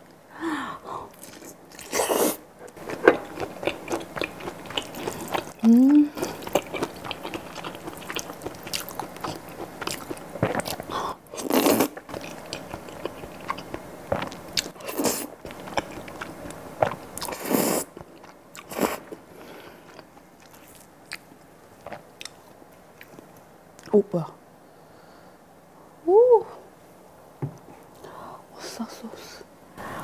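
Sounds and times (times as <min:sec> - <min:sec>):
chewing: 0:01.2 - 0:19.2.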